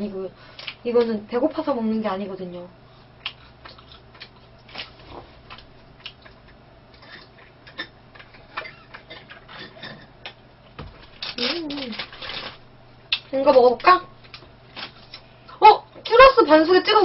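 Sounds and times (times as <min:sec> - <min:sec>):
low steady hum: 0:00.0 - 0:17.0
chewing crunches: 0:03.1 - 0:10.4.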